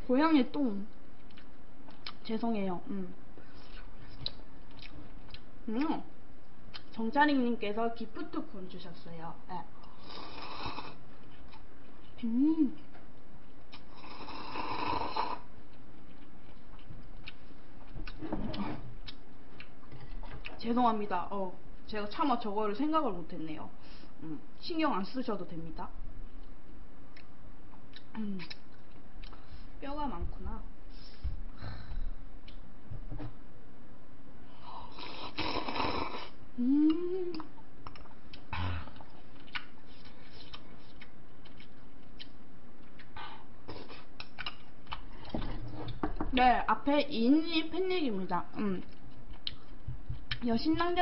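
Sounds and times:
chewing clicks: 1.2 - 2.2, 37.4 - 39.7, 44.2 - 45.0
person slurping from cup: 35.0 - 36.4.

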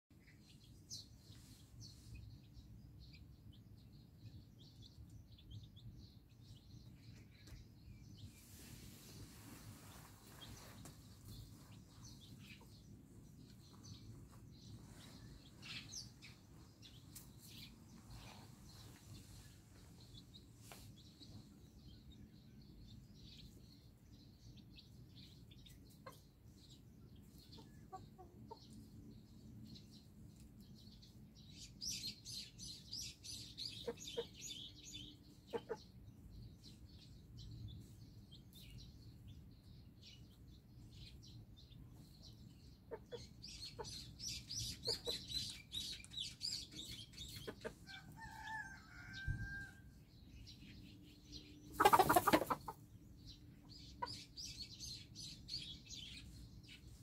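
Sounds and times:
chicks peeping: 0.2 - 8.4, 9.2 - 57.0
hen clucking: 35.5 - 35.9, 42.9 - 48.8, 51.7 - 52.8.

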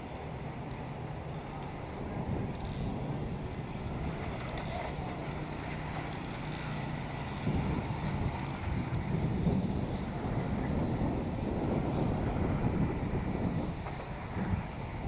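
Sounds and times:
wind buffeting microphone: 0.8 - 15.0.

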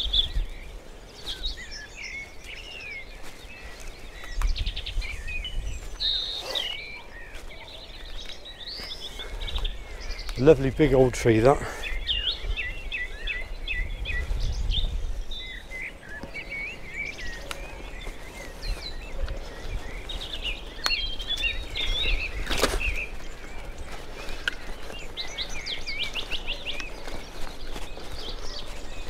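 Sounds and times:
bicycle rolling on dirt: 0.0 - 6.4, 7.1 - 29.0
songbirds chirping: 0.0 - 29.0.

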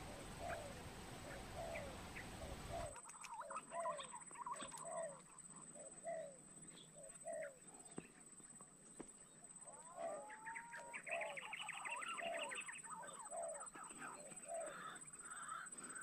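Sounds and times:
pigeon cooing: 0.0 - 6.4, 9.7 - 11.4
birds chirping: 0.0 - 8.5
steady background hiss: 0.0 - 9.8.

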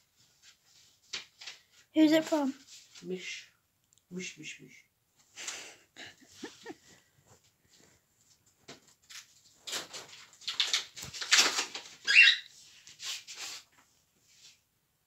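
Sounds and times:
paper rustling and tearing: 8.9 - 13.9.

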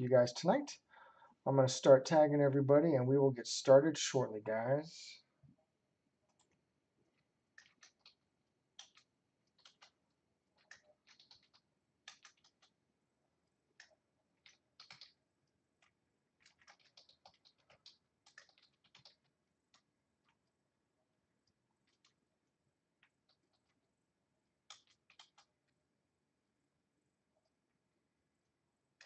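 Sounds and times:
typing on computer keyboard: 7.5 - 12.8, 13.7 - 15.2, 15.8 - 20.4, 21.8 - 22.2, 24.6 - 25.7.

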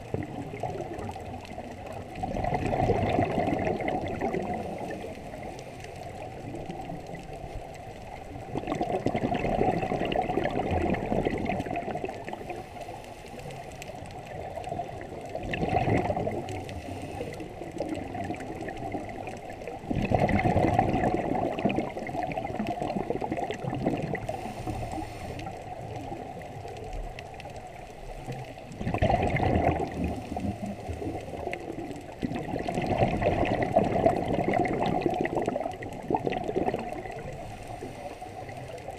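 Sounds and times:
exhaled bubbles underwater: 0.0 - 38.9
regulator hiss and bubbling: 0.0 - 38.9.

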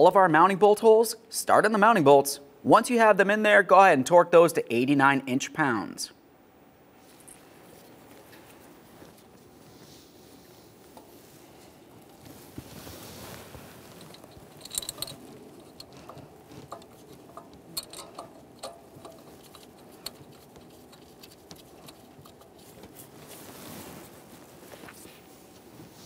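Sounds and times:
metallic clicks and taps: 14.0 - 23.0.

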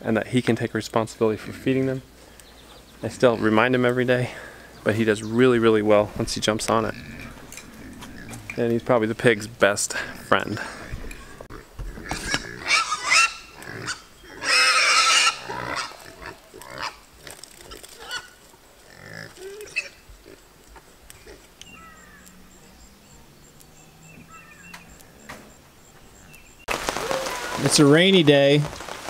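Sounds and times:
pigs squealing: 6.8 - 8.6, 10.0 - 20.5.

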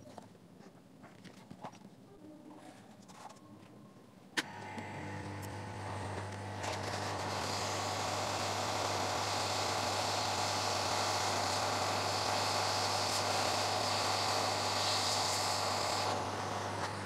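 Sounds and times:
heat gun blowing: 4.4 - 17.0.

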